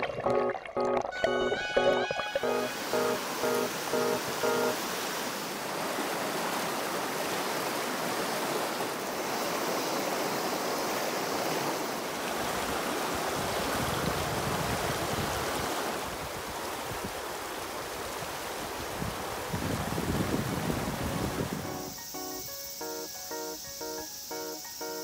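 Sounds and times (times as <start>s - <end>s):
river rushing over stones: 2.3s - 21.6s.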